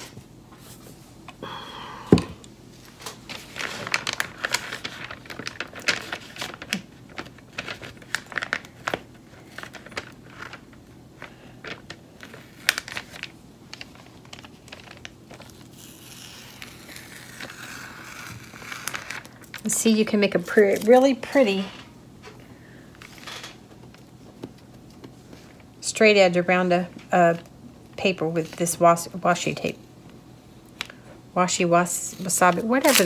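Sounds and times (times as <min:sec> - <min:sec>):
tape peeling off paper: 0:11.7 - 0:19.6, 0:32.2 - 0:33.0.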